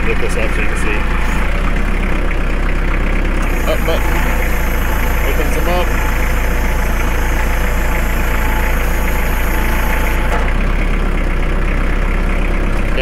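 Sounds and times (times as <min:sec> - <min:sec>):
tractor diesel engine running: 0:00.0 - 0:13.0
high hydraulic hiss: 0:03.4 - 0:10.3.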